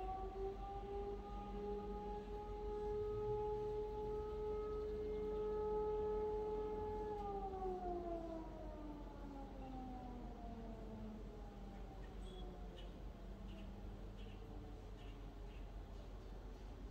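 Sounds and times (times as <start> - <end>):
fire siren winding down: 0.0 - 12.7.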